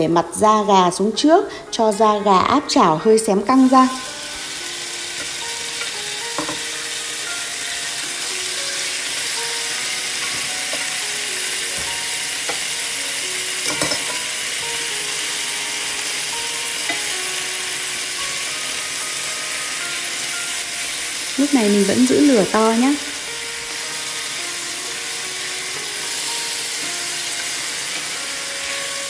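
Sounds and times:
chicken sizzling in hot oil: 0:02.8 - 0:29.0
utensils knocking against pan: 0:05.2 - 0:06.7, 0:10.2 - 0:10.9, 0:11.7 - 0:12.7, 0:13.6 - 0:14.3.

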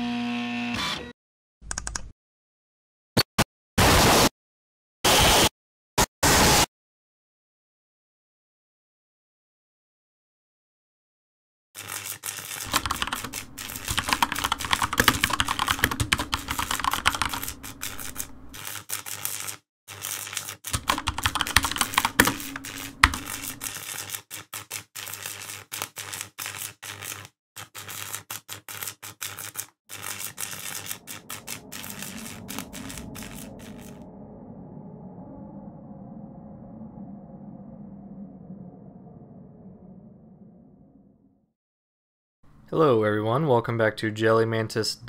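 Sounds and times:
rapid keyboard typing: 0:01.6 - 0:02.1, 0:11.8 - 0:34.0.

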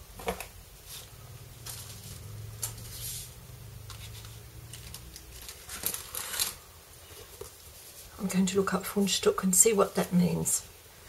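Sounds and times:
paper and plastic rustling: 0:00.2 - 0:08.2.

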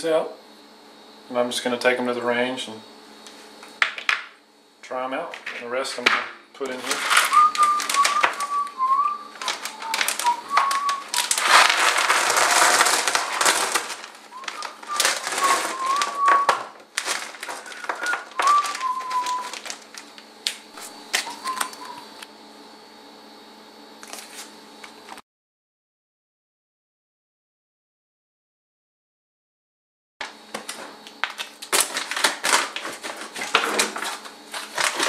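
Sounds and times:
plastic bag crinkling: 0:06.6 - 0:22.1, 0:30.6 - 0:35.0.

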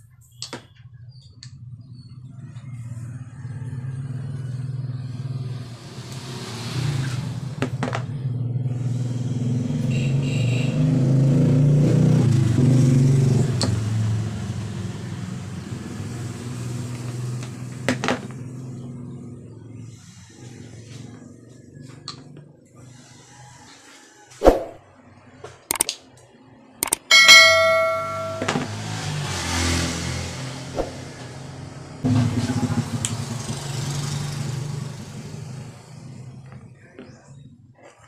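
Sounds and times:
motor vehicle engine rumble: 0:27.4 - 0:38.0.

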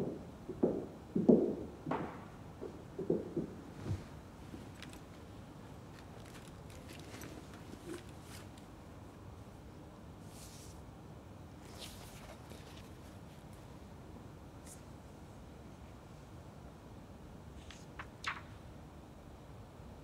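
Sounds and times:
handbag rustling: 0:04.6 - 0:05.2, 0:05.9 - 0:08.5.

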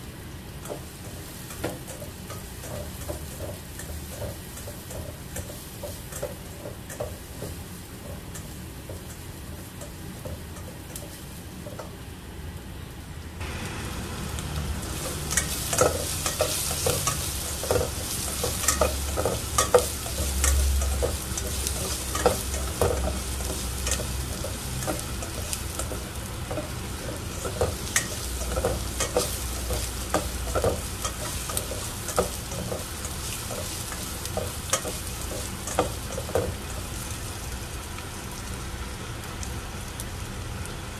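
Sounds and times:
onion sizzling in hot oil: 0:00.0 - 0:40.9
spatula scraping a pan: 0:15.0 - 0:36.6.

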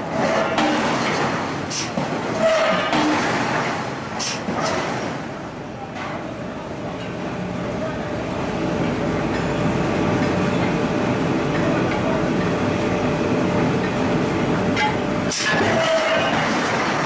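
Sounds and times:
forge machinery din: 0:14.5 - 0:17.0.

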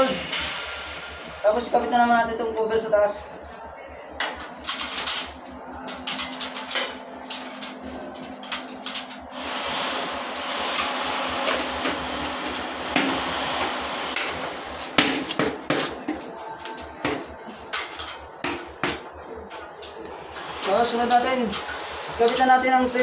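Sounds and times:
steady rushing noise: 0:00.0 - 0:03.3.

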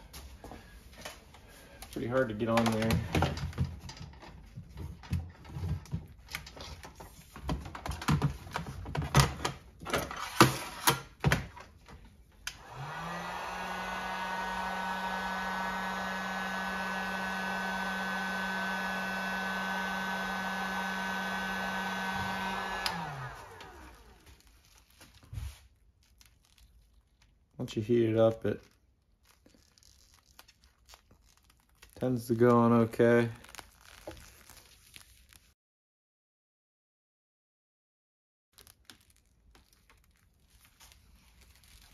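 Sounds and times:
heat gun fan humming: 0:12.4 - 0:24.5.

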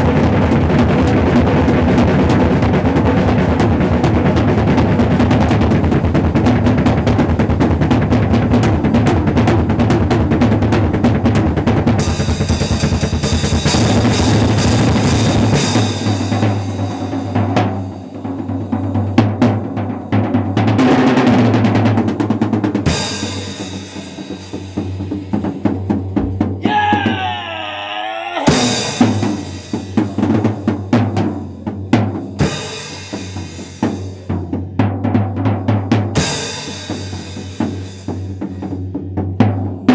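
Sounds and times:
drum kit solo: 0:09.5 - 0:38.7.

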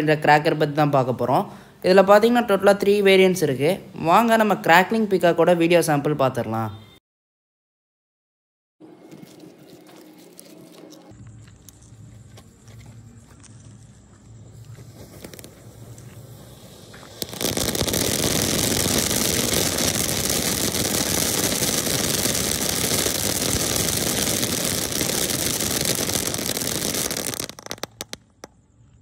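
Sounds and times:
firework crackling: 0:14.6 - 0:28.6.

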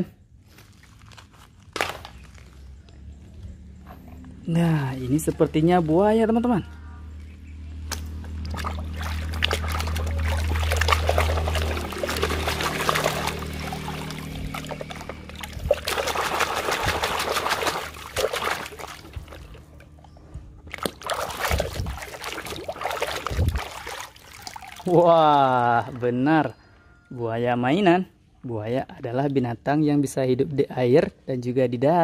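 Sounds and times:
low steady hum: 0:02.3 - 0:27.1
water splashing in metal basin: 0:07.9 - 0:25.9.

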